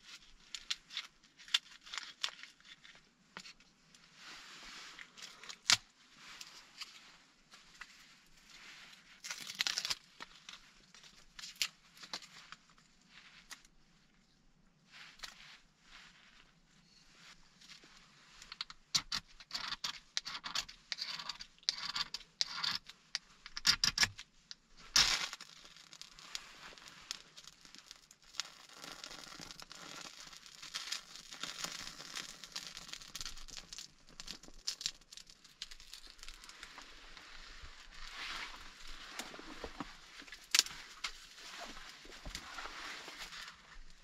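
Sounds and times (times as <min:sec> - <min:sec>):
bark burning with crackle: 0:24.9 - 0:37.2.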